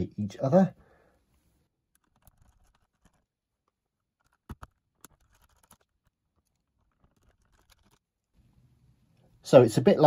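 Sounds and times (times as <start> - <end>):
screwdriver scratching and clicking: 1.9 - 8.2.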